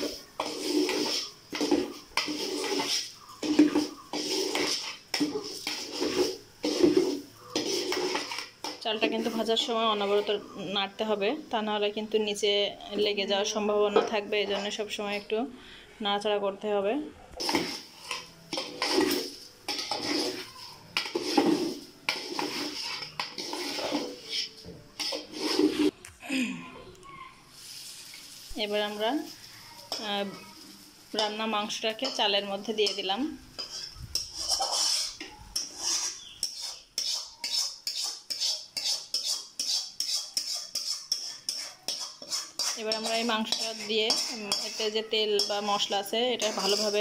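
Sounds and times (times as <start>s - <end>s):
metal spatula scraping cooking pot: 0.0s - 11.1s, 12.2s - 15.4s, 17.4s - 26.0s, 31.1s - 47.0s.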